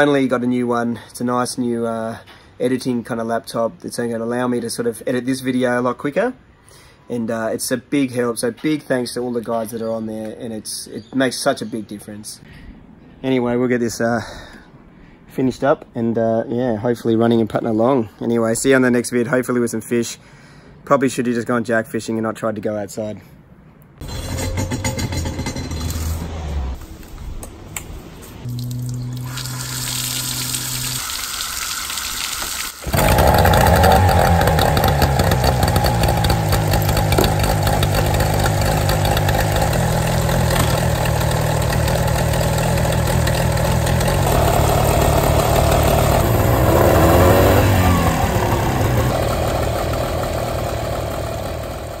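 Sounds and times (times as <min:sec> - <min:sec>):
outboard motor running: 0:32.9 - 0:52.0.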